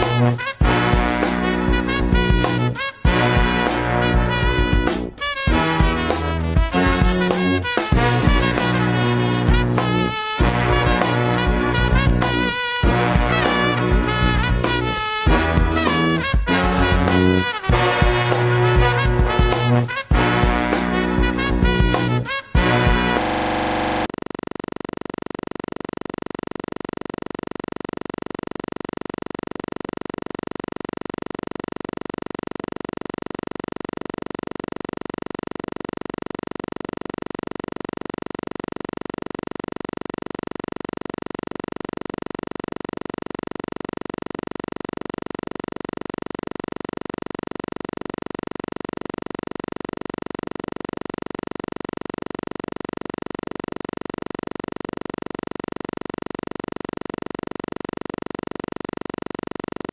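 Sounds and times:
steady electronic drone: 0:00.0 - 0:24.1.

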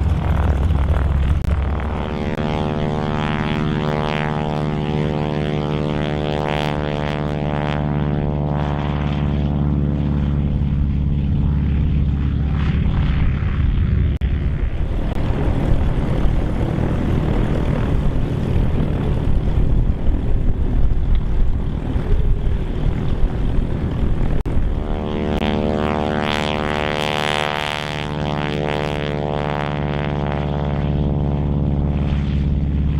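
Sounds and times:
propeller plane engines droning: 0:00.0 - 0:32.9
small propeller planes taxiing: 0:00.0 - 0:32.9.

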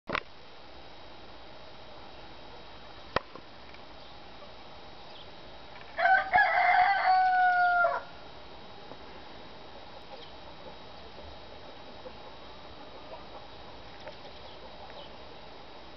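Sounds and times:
rooster crowing: 0:06.0 - 0:08.2.

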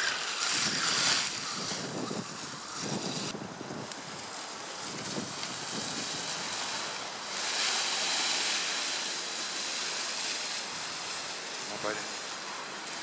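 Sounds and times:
dry leaves rustling and crunching: 0:00.0 - 0:13.0.

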